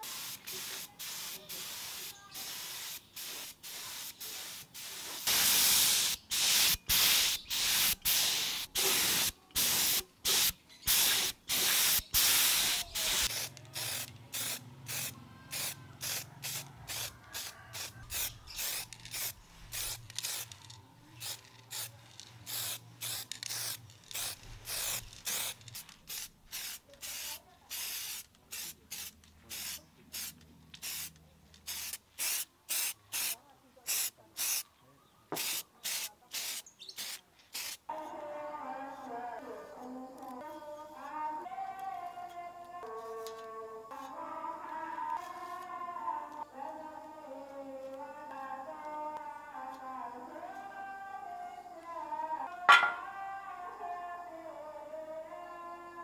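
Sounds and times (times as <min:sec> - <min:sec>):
spray gun hissing: 0:00.0 - 0:20.5, 0:21.2 - 0:31.1
aerosol spray can puffs: 0:00.0 - 0:34.6, 0:35.4 - 0:37.9.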